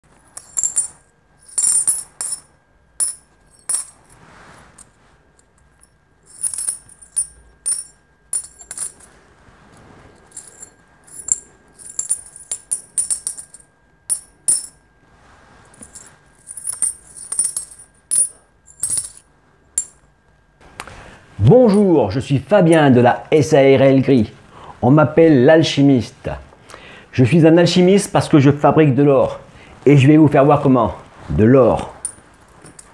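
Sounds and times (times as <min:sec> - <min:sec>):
coins clinking: 0:00.2 - 0:04.2, 0:05.8 - 0:09.1, 0:10.2 - 0:14.8, 0:15.8 - 0:19.2, 0:32.0 - 0:32.9.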